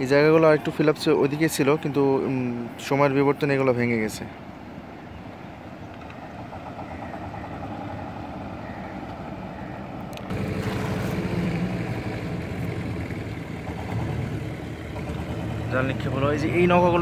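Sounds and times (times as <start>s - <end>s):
engine running with fast throb: 10.3s - 17.0s.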